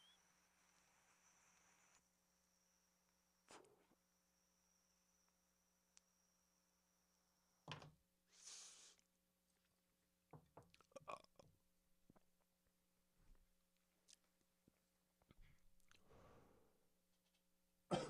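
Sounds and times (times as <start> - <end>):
brief hiss: 8.3 - 9.1.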